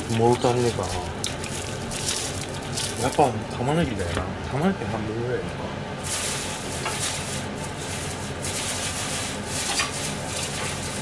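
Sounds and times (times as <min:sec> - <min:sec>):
onion skin rustling: 0:00.0 - 0:03.3, 0:06.0 - 0:11.0
steady low hum: 0:00.0 - 0:11.0.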